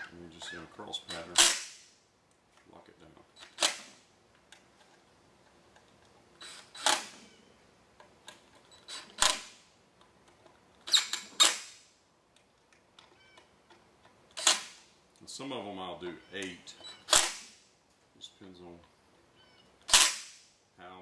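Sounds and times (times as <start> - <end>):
cordless drill driving screws: 6.4 - 7.3, 8.6 - 9.5, 10.8 - 11.7, 14.3 - 14.8, 16.8 - 17.5.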